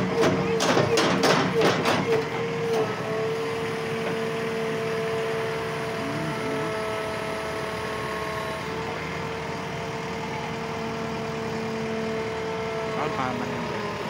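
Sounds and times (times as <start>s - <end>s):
diesel engine running: 0.0s - 14.0s
steady whine: 2.8s - 9.7s.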